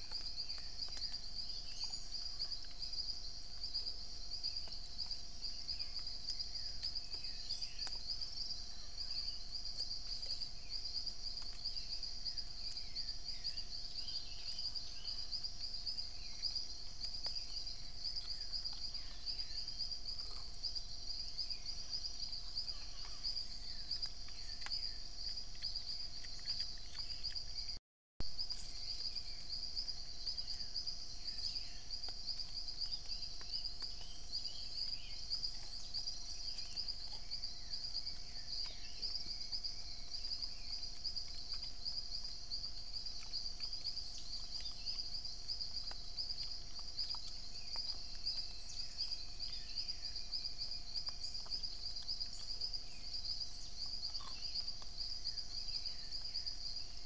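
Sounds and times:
trilling insect chorus: 0.0s - 57.0s.

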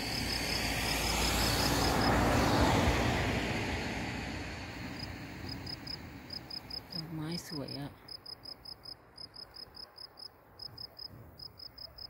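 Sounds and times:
vehicle passing by: 0.0s - 7.9s.

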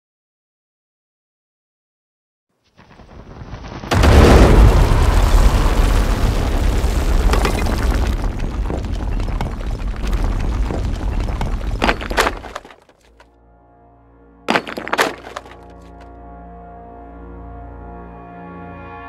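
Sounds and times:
crackles: 2.6s - 13.2s
explosion blast: 3.0s - 12.5s.

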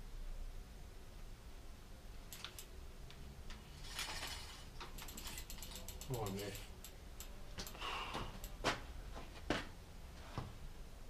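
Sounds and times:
bicycle freewheel ratchet clicking: 2.3s - 2.7s, 3.9s - 7.8s.

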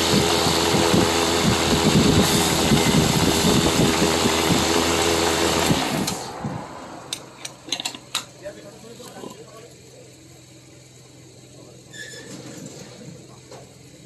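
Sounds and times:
wood lathe humming: 0.0s - 6.2s.

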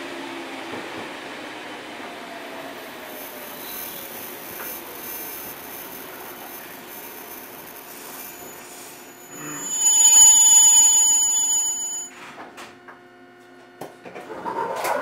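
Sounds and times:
railcar running: 0.0s - 12.3s
high-pitched wheel squeal: 3.1s - 12.1s.

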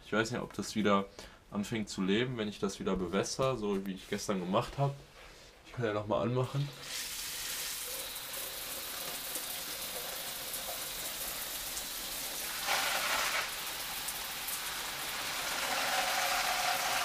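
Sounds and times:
shower water splashing: 6.7s - 17.0s.

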